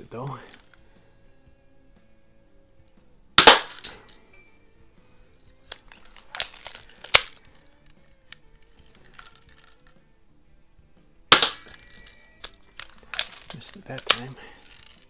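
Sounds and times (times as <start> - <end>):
sharp snap of pistol action: 3.4 - 4.1, 11.3 - 13.3
pistol metallic clicks: 3.4 - 4.4, 5.7 - 10.0, 11.3 - 15.0.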